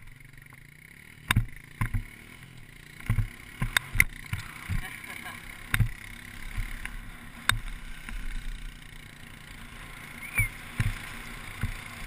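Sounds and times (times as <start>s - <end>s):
skis sliding over grass: 9.2s - 12.0s.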